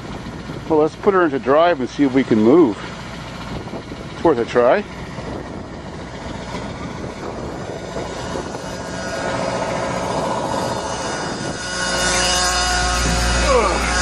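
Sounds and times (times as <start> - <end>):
diesel bus engine idling: 0.0 - 11.6
dashboard buzzer: 8.1 - 14.0.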